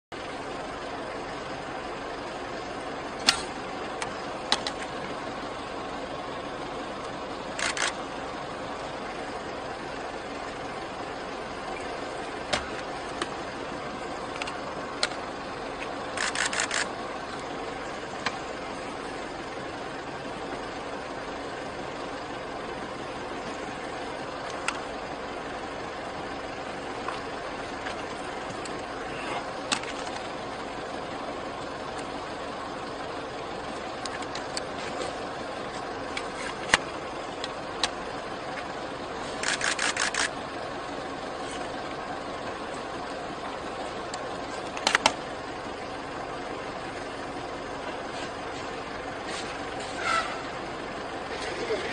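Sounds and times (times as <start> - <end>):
car engine idling: 0.1 - 51.9
sharp clicks: 7.5 - 8.0, 15.8 - 17.5, 39.4 - 40.4, 44.1 - 45.2.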